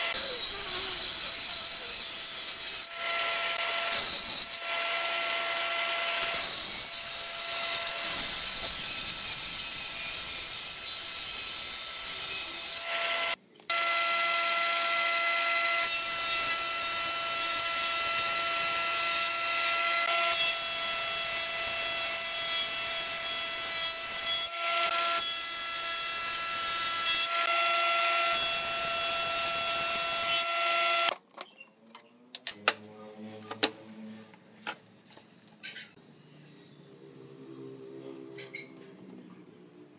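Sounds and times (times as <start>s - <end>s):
woodworking machine motor whine: 13.0s - 15.9s.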